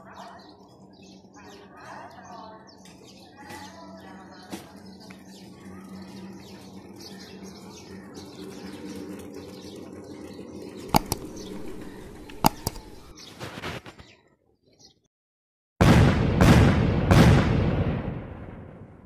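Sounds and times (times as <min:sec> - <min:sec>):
sharp double clicks: 0:10.9 - 0:13.1.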